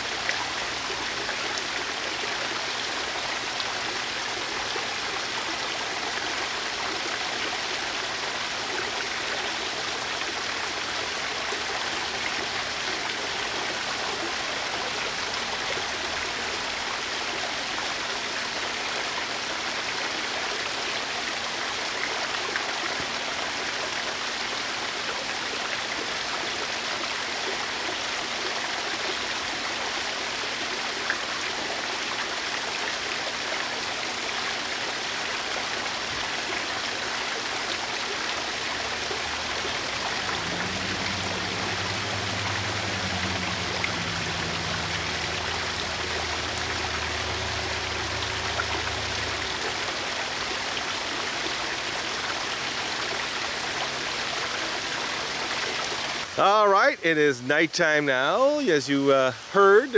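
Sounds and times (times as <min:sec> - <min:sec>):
waterfall splashing: 0:00.0 - 0:59.9.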